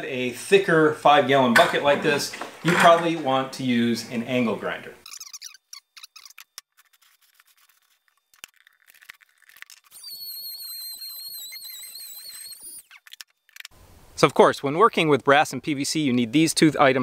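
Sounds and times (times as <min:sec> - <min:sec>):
rotary tool cutting plastic: 0:05.0 - 0:13.7.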